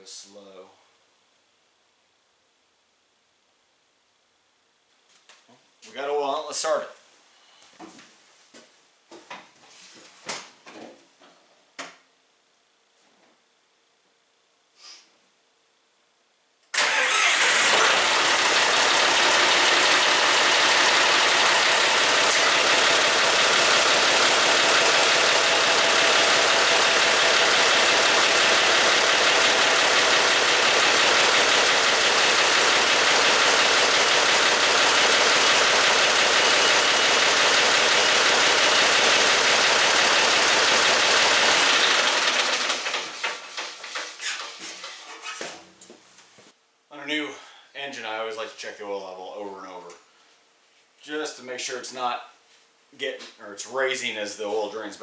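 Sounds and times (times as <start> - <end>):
tractor diesel engine starting and idling: 16.8 - 44.1.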